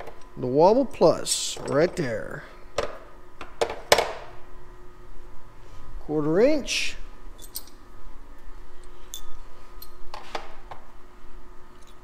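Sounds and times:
metal tool extensions clinking: 0:07.4 - 0:07.8.

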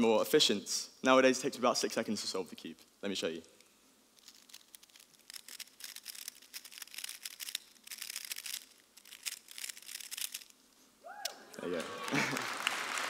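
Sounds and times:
puzzle cube clicking: 0:04.2 - 0:10.6.

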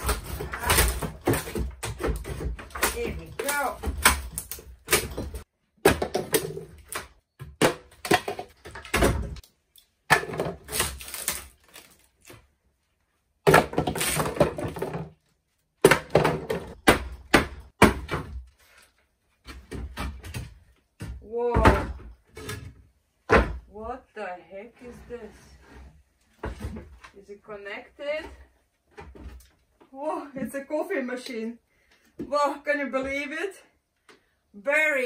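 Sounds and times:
wood cracking and splintering: 0:00.0 - 0:09.5, 0:10.1 - 0:12.4.

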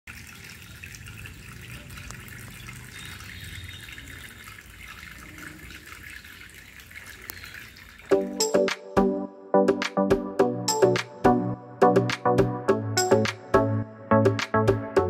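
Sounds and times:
water trickling and splashing: 0:00.0 - 0:08.9.

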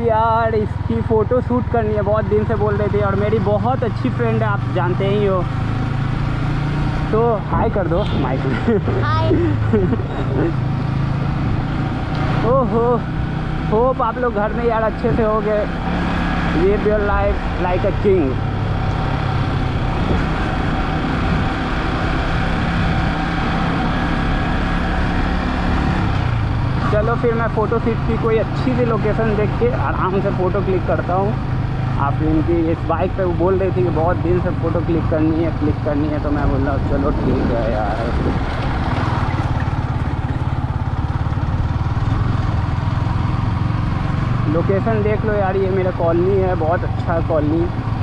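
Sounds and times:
motorcycle engine running: 0:00.0 - 0:48.0
wind noise: 0:19.6 - 0:23.7, 0:36.2 - 0:39.3.

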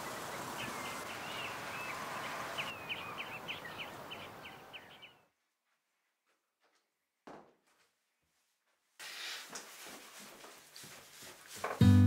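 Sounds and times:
small birds chirping: 0:00.0 - 0:05.3.

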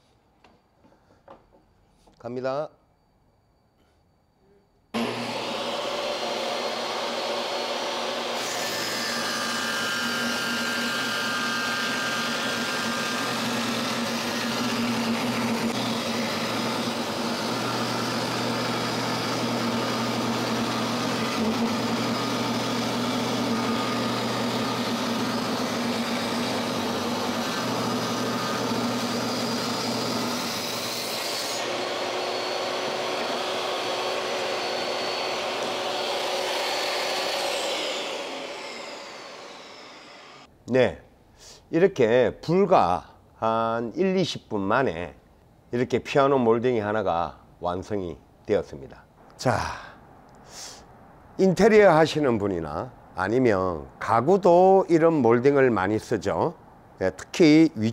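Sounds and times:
table saw running: 0:05.0 - 0:40.5.

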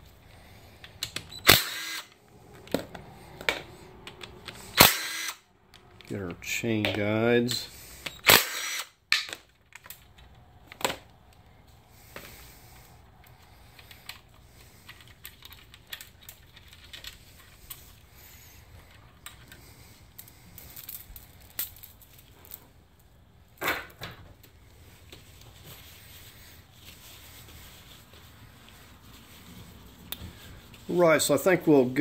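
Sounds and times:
cordless driver running: 0:01.4 - 0:02.1, 0:04.8 - 0:05.4.

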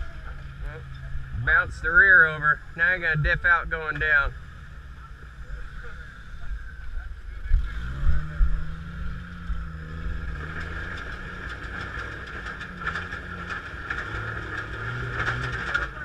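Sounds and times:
engine revving: 0:00.0 - 0:16.0
heavy thumps: 0:01.0 - 0:04.4.

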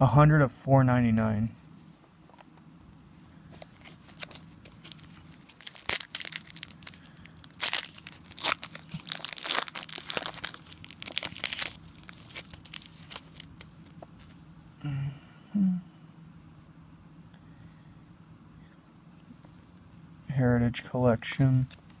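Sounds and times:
foil wrapper tearing and crinkling: 0:03.7 - 0:13.8.

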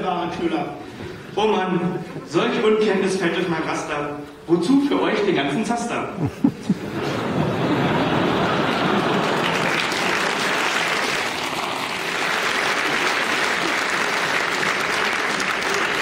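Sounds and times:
audience applauding: 0:06.8 - 0:16.0.

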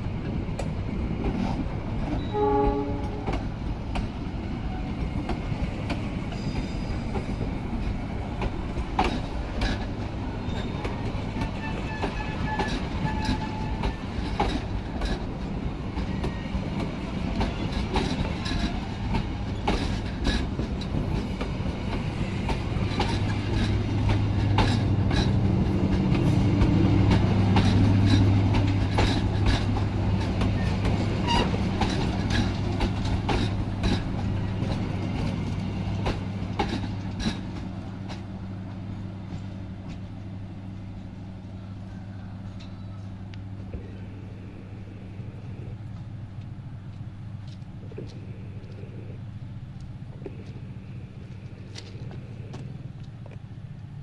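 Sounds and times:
low steady train hum: 0:00.0 - 0:54.0
train wheels clacking over rail joints: 0:04.8 - 0:40.2.

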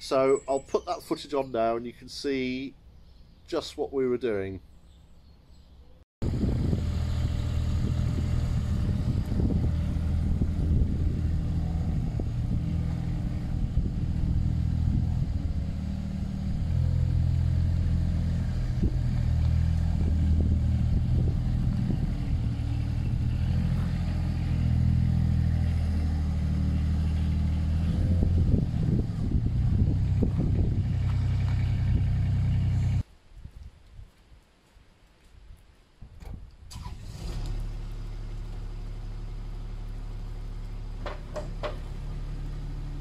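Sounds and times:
diesel dumper engine running: 0:06.2 - 0:33.0.

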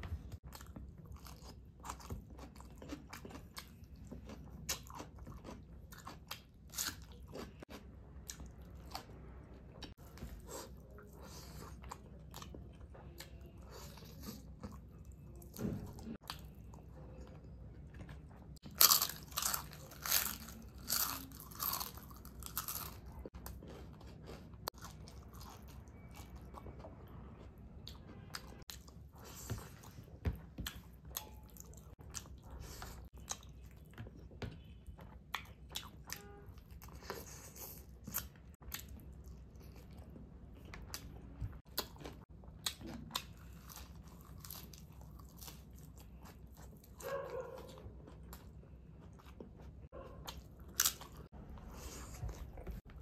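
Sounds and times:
person chewing crunchy food: 0:00.0 - 0:53.0.

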